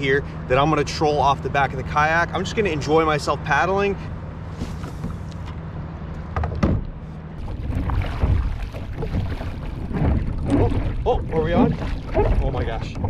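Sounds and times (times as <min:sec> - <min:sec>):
low rumble: 0:06.7 - 0:13.0
paddle splashing in water: 0:07.4 - 0:13.0.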